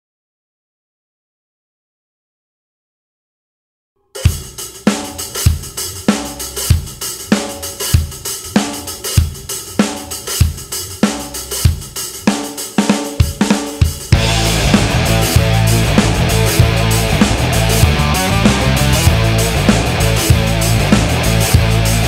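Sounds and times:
rock drum beat: 4.2 - 22.0
rock band with guitar: 13.2 - 22.0.

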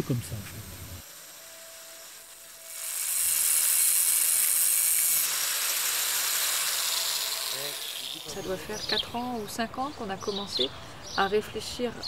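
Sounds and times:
angle grinder grinding: 0.6 - 9.0.

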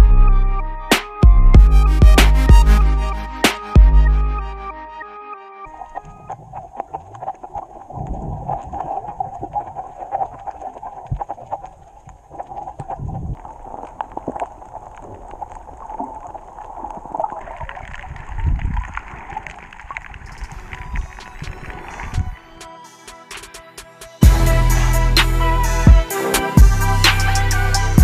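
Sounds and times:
dull low thuds: 1.2 - 2.8
steady underwater drone: 5.7 - 17.5
underwater bubbling: 5.7 - 22.4.

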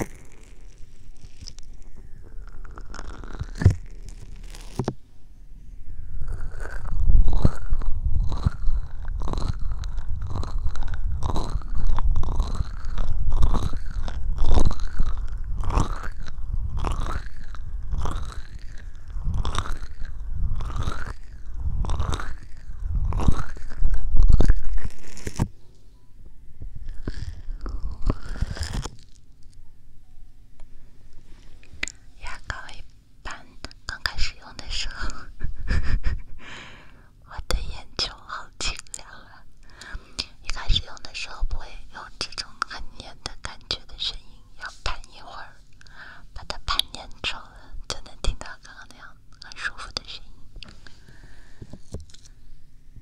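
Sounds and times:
deep rumble: 0.0 - 25.6, 26.3 - 30.0.

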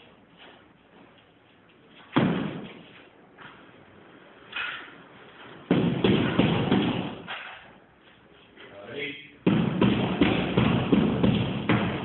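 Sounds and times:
sharp thud: 2.2 - 2.7
wall panel banging and scraping: 4.5 - 7.8, 9.4 - 12.0.

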